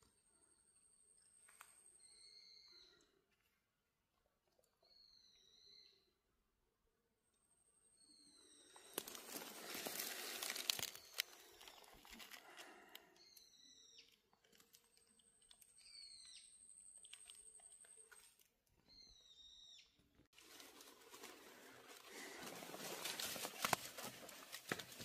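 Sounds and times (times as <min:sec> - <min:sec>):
bird chirping: 0:00.2 - 0:03.2, 0:04.8 - 0:06.2, 0:13.2 - 0:18.2, 0:18.8 - 0:20.3
dry leaves rustling and crunching: 0:08.9 - 0:12.4, 0:20.4 - 0:25.0.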